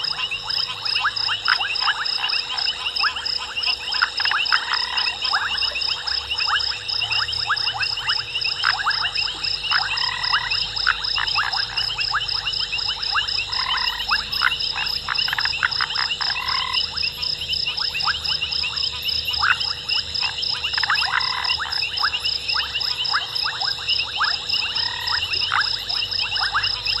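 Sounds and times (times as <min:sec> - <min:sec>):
frogs clicking and croaking: 0:00.0 - 0:27.0.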